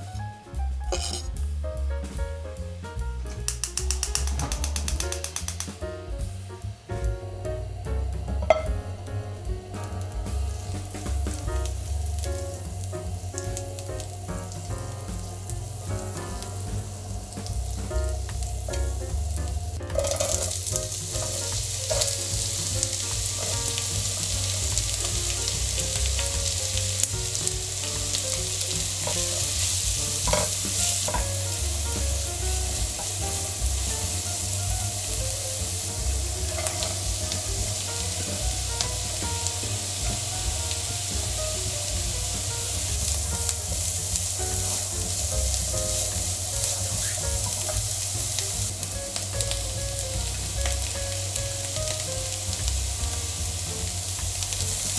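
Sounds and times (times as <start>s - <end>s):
soft background music: 0.0s - 54.9s
food sizzling in a frying pan: 0.9s - 1.4s, 3.5s - 6.8s, 7.8s - 54.9s
clicks: 3.5s - 5.8s.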